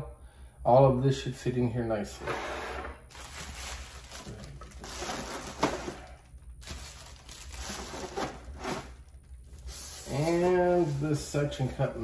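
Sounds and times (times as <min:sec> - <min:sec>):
packaging crinkling and rustling: 0:03.1 - 0:11.6.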